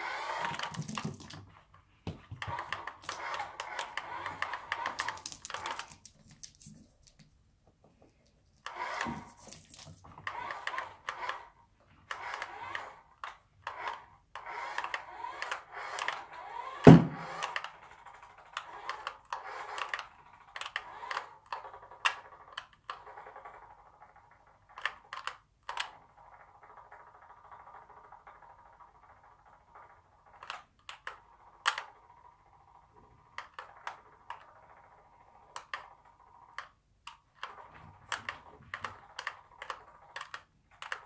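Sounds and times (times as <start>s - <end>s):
toy car motor whirring: 0.0s - 1.4s, 2.4s - 7.2s, 8.6s - 41.0s
loud thump: 16.9s - 17.4s.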